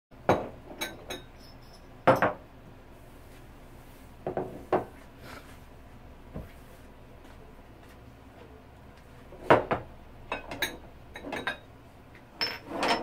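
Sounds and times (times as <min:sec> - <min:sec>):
dishes clinking: 0:00.3 - 0:02.4, 0:09.5 - 0:11.7, 0:12.4 - 0:13.0.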